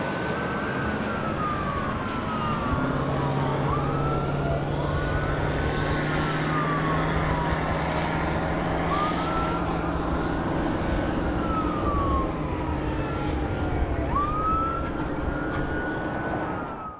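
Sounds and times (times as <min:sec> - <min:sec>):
fire truck sirens wailing: 0:00.0 - 0:16.9.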